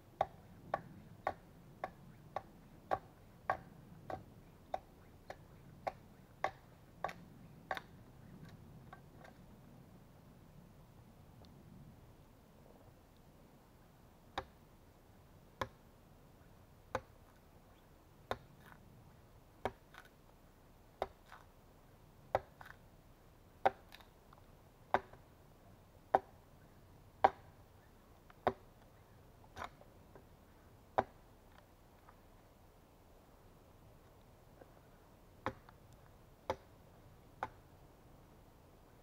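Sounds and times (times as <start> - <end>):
axe striking log: 19.6 - 20.0, 22.3 - 22.8, 23.6 - 24.0, 24.9 - 25.2, 26.1 - 26.3, 27.2 - 27.5, 28.4 - 28.6, 31.0 - 31.2, 35.4 - 35.7, 36.5 - 36.7.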